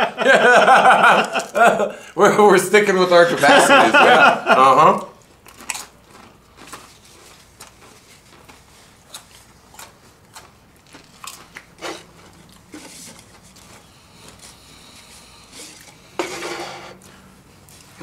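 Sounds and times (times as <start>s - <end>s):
people chewing potato chips: 0.8s - 1.8s, 4.6s - 16.2s.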